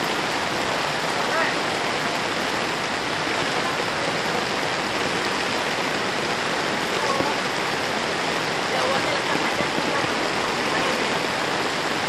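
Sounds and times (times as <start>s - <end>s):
rain on flooded street: 0.0s - 12.0s.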